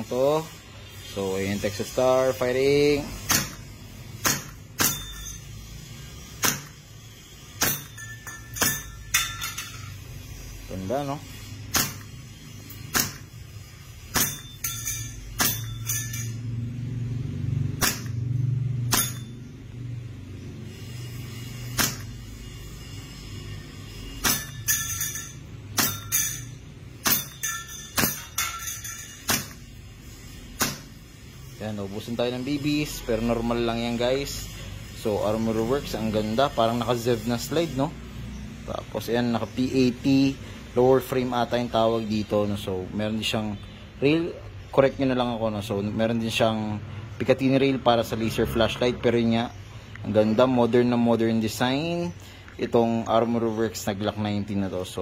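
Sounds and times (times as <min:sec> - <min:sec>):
metallic clinks of bbs on steel: 0:03.2 - 0:10.6, 0:11.3 - 0:16.8, 0:18.9 - 0:19.8, 0:21.3 - 0:31.6
airsoft pistol shots: 0:03.3 - 0:03.6, 0:04.2 - 0:05.0, 0:06.4 - 0:06.8, 0:11.7 - 0:12.1, 0:12.9 - 0:13.3, 0:17.8 - 0:18.2, 0:21.8 - 0:22.1, 0:24.2 - 0:24.6, 0:30.6 - 0:30.9.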